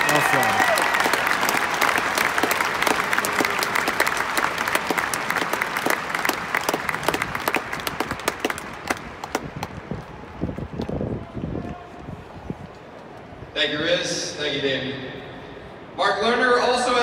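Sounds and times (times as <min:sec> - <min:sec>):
stadium crowd applauding: 0:00.0 - 0:12.0.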